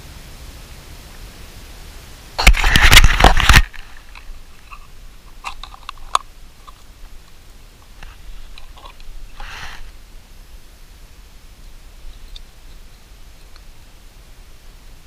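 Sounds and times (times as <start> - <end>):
loud crunching rustle: 2.4 - 10.0.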